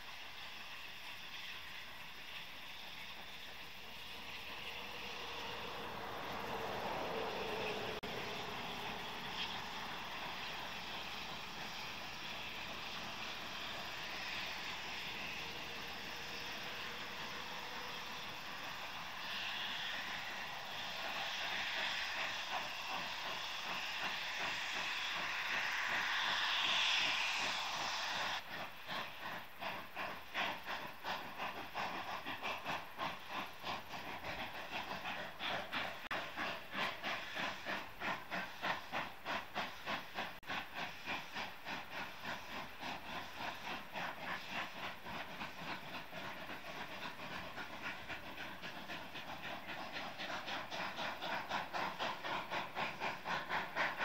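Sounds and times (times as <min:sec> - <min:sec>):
steam hissing: 0:00.0 - 0:54.0
steam locomotive exhaust beats: 0:00.0 - 0:54.0.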